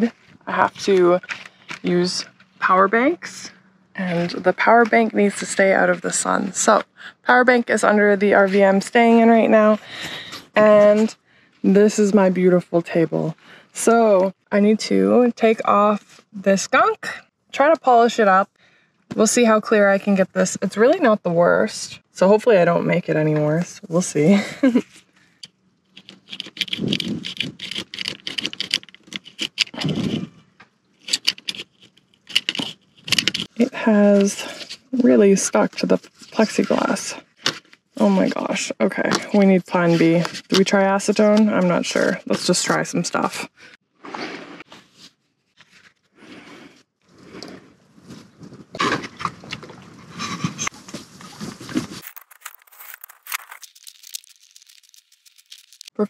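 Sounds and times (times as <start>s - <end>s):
scraper scraping plastic: 26.0s - 30.3s, 31.0s - 33.6s.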